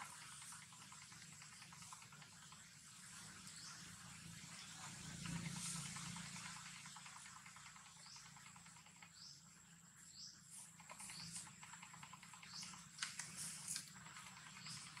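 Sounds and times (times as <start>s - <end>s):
soft clicks: 10.7s - 15.0s.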